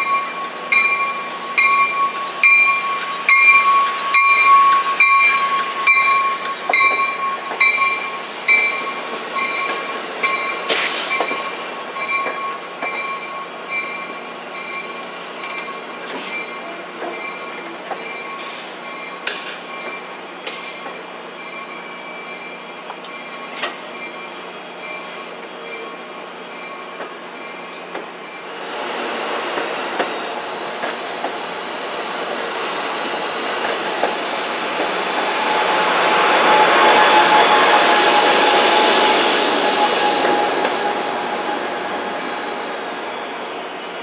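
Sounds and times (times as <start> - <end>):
rail clicks: 0.0 - 21.6, 22.5 - 25.6, 26.5 - 42.5
train cars rolling on rails: 0.0 - 44.0
wheel squeal: 32.4 - 43.4.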